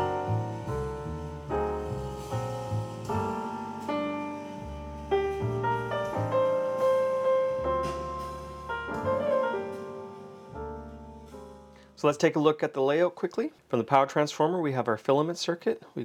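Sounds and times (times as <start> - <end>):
solo piano music: 0.0 - 12.1.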